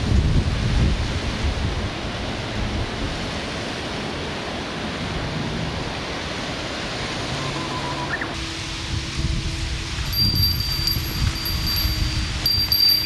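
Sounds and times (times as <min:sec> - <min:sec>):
wind blowing steadily: 0:00.0 - 0:13.0.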